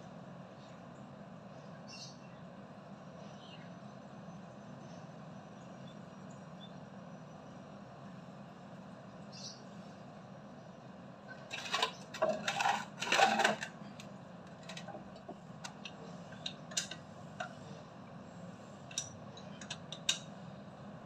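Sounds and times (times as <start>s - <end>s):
metal tools clinking and clattering: 11.5s - 13.7s, 14.6s - 15.0s, 15.7s - 17.0s.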